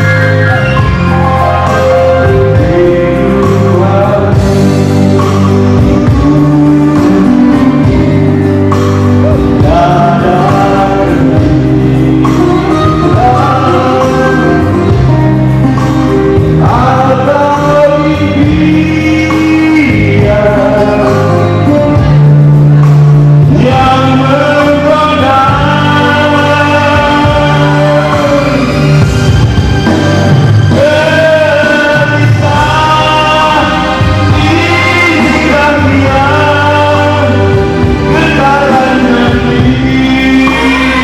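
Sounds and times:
man singing through a microphone: 0.0 - 29.6, 30.6 - 41.0
electronic keyboard chords: 0.0 - 41.0.

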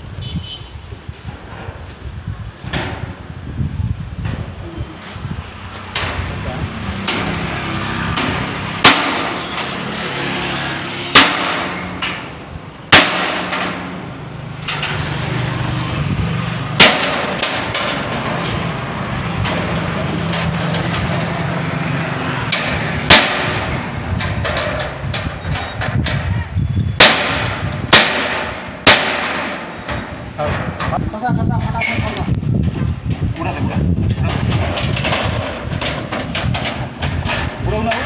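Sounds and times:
hammer striking steel: 7.0 - 15.1, 16.8 - 21.3, 22.4 - 26.2, 27.0 - 31.0.

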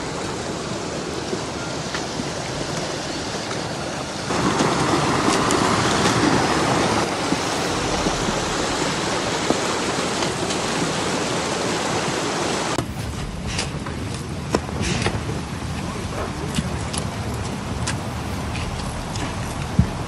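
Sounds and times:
steady rushing outdoor noise: 0.0 - 20.0.

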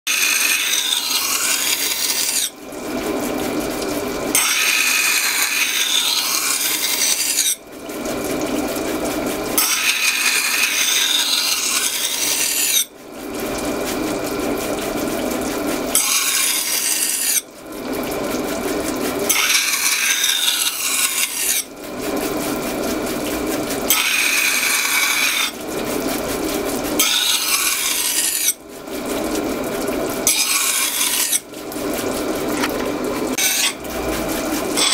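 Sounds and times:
knife grinding on wet stone wheel: 0.1 - 34.9.

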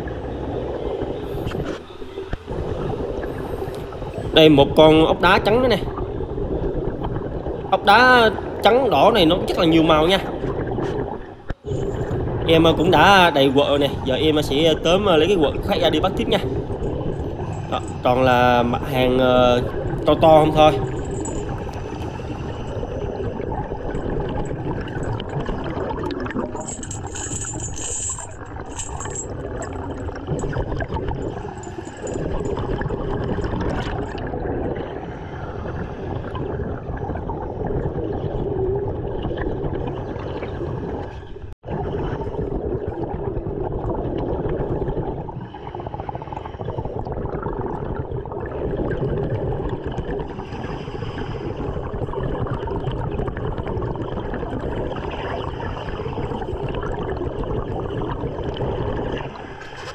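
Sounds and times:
underwater water wash: 0.0 - 59.9.

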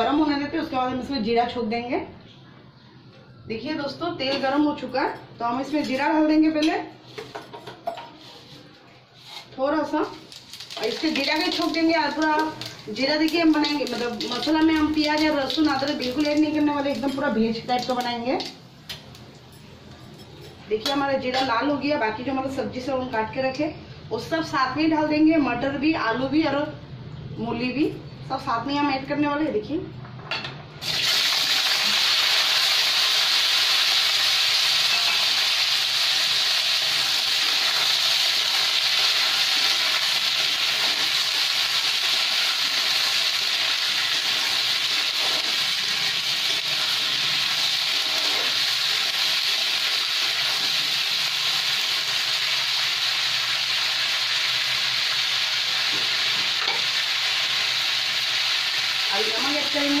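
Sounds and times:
vegetables sizzling in hot oil: 10.1 - 19.0, 30.8 - 60.0.

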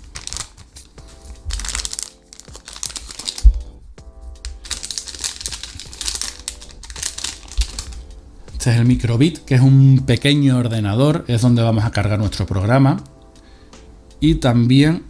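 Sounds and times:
plastic bags crinkling: 0.0 - 3.7, 4.5 - 8.1
background music: 0.0 - 15.0.

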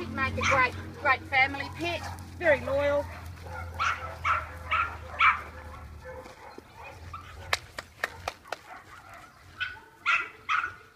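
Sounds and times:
dog barking: 0.4 - 0.7, 1.6 - 2.4, 3.0 - 10.9.

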